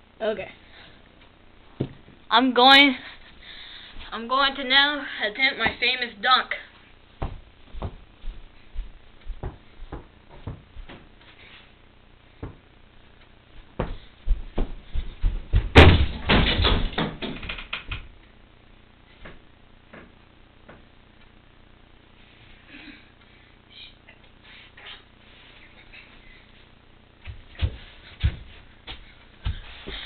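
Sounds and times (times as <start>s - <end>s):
thumps and knocks: 1.8s - 2.2s, 7.2s - 8.0s.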